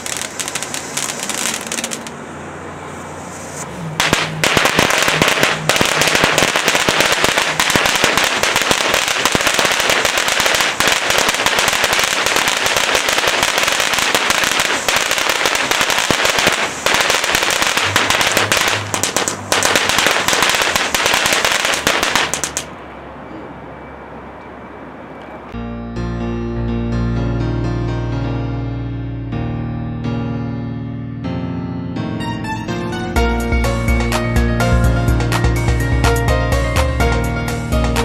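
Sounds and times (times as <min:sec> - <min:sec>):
rapid crackling pops: 0:00.0 - 0:02.1, 0:04.0 - 0:22.7
firework fountain hissing: 0:00.0 - 0:02.2, 0:02.8 - 0:22.7.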